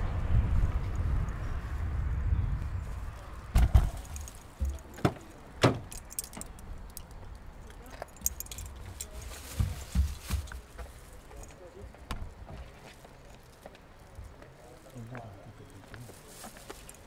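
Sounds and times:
keys jingling: 5.8 - 7.0, 7.8 - 9.3.

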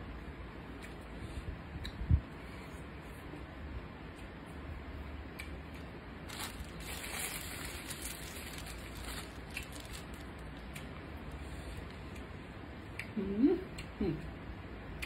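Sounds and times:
plastic bag crinkling: 6.3 - 10.6.

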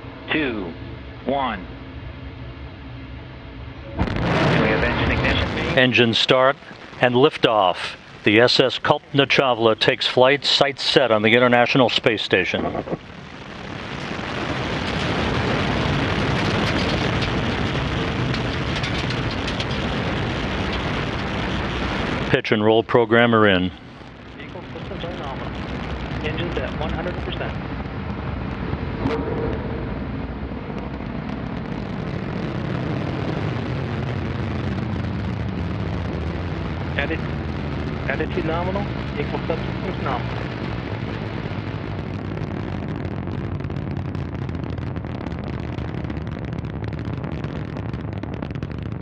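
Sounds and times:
rocket engine rumble with crackle: 0.0 - 49.0.

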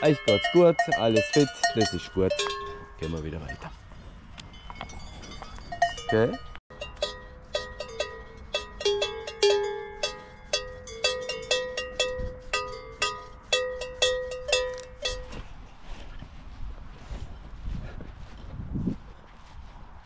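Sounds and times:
cowbells clanging: 0.0 - 15.7.

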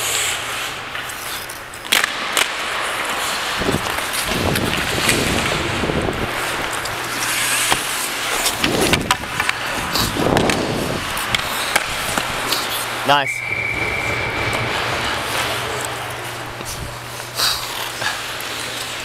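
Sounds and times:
hockey stick clacks: 0.0 - 5.8, 6.4 - 13.0
skates scraping on ice: 0.0 - 13.0, 13.7 - 19.0.

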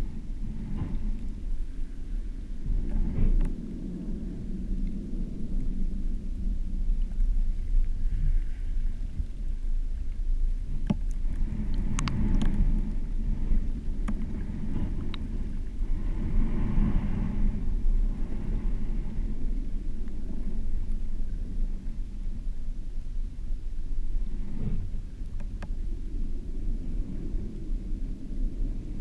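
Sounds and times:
underwater rumble of moving water: 0.0 - 29.0
faint clicks: 2.8 - 3.6, 9.0 - 13.0, 13.7 - 15.6, 20.0 - 20.3, 25.1 - 26.0.

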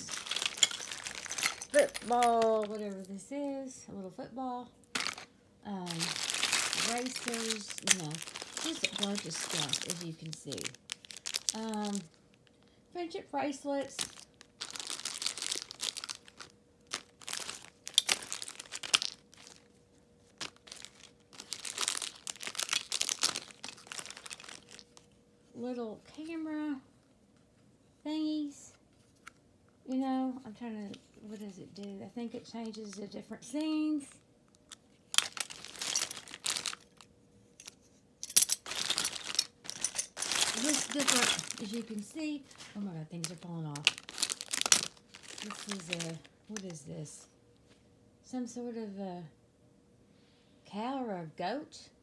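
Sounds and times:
plastic wrappers crinkling: 0.0 - 3.2, 4.9 - 12.6, 13.8 - 25.1, 34.5 - 46.9.

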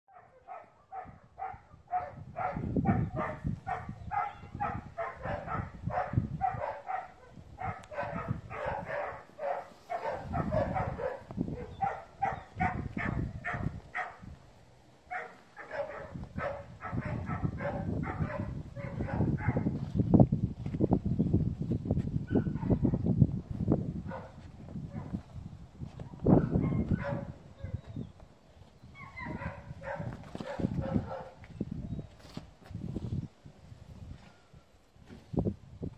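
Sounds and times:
dog barking: 0.1 - 14.3, 15.1 - 19.7, 22.3 - 22.9, 24.1 - 25.2, 26.4 - 27.8, 29.0 - 31.4.

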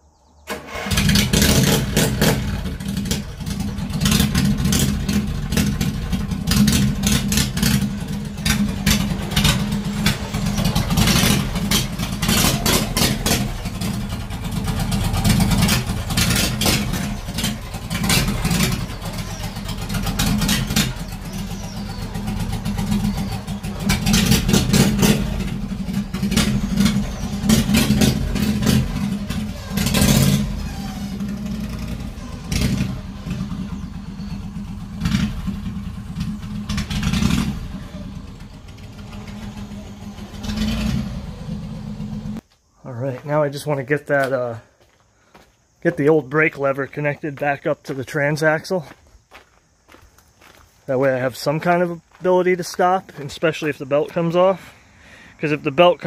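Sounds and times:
tractor engine revving: 0.5 - 42.4.

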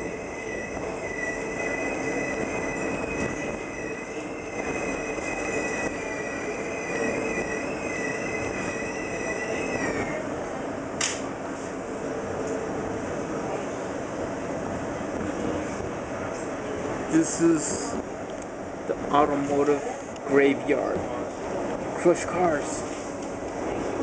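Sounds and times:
high wavering wheel squeal: 0.0 - 10.2
train rumble: 0.0 - 24.0
sharp click: 11.0 - 11.2.

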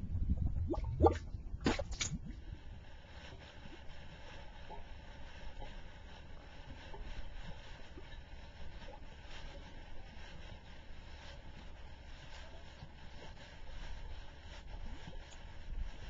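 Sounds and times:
mud bubbles popping: 0.0 - 2.4
mud bubbling: 0.0 - 2.6
steady low rumble: 0.0 - 16.0.

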